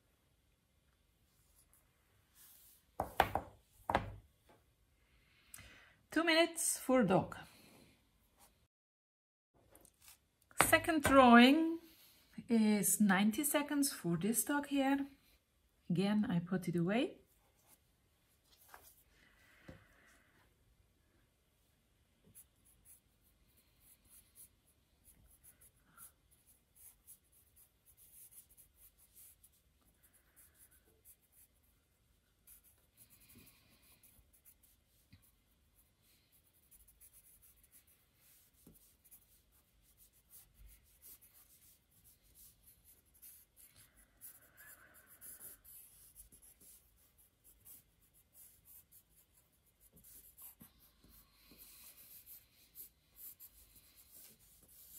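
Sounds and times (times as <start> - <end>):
pen scratching on paper: 22.3 - 31.7, 32.4 - 54.9.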